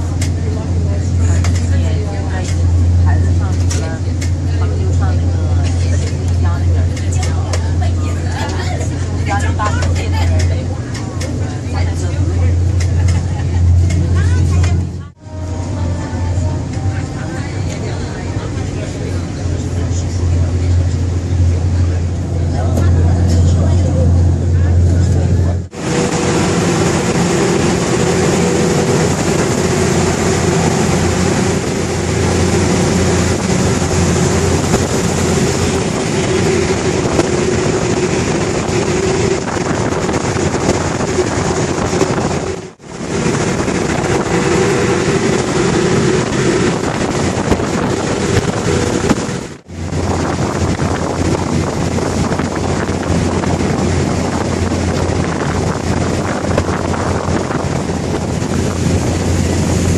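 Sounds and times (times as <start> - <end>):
ferry engine hum: 0.0 - 59.9
wind buffeting microphone: 17.1 - 59.9
rushing water: 17.5 - 59.9.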